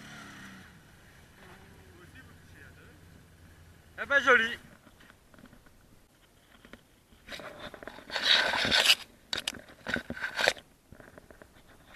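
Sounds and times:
crunching and scraping: 4.6s - 11.9s.

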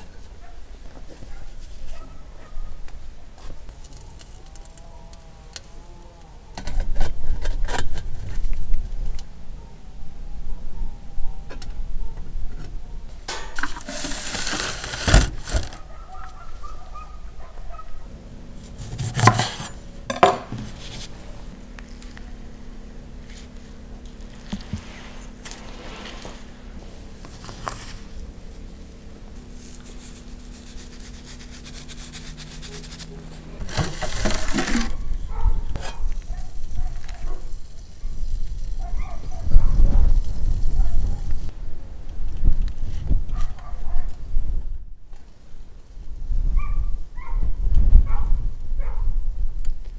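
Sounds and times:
metal lid scraping across rim: 13.3s - 15.8s, 29.6s - 35.1s, 35.7s - 36.2s.

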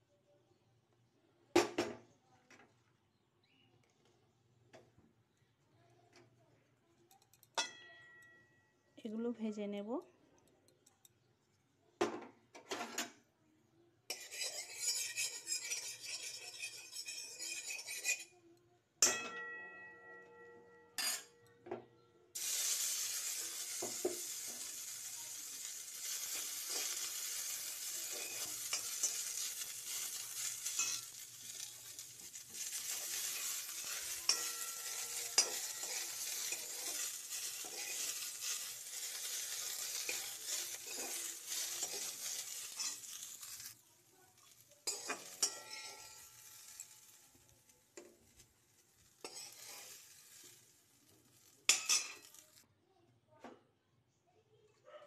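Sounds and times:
spatula scraping and tapping pan: 14.1s - 18.4s, 23.0s - 43.8s, 44.4s - 52.6s
ringing metal clang: 19.0s - 21.4s
frying sizzle: 22.4s - 52.6s.

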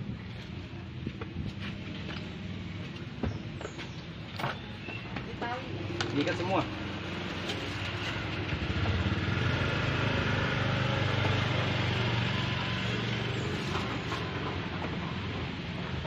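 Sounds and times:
small engine running: 6.3s - 16.0s.

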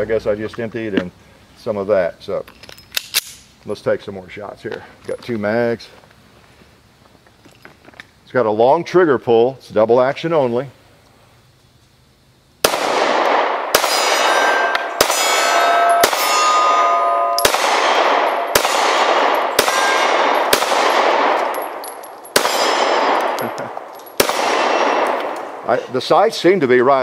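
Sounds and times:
pistol shots: 12.6s - 25.7s
steel targets clanging: 13.8s - 25.4s.

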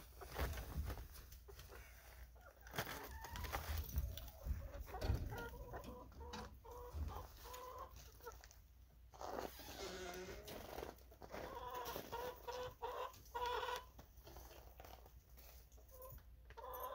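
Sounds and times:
hens clucking: 0.1s - 8.7s, 10.0s - 14.4s, 16.5s - 16.9s.

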